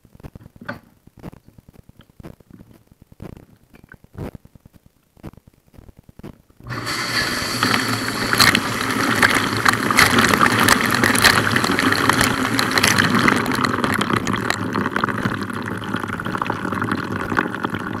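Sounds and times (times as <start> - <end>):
water spraying against walls: 6.7 - 13.4
dishwasher pump: 6.7 - 14.1
water drips and splashes: 7.6 - 15.4.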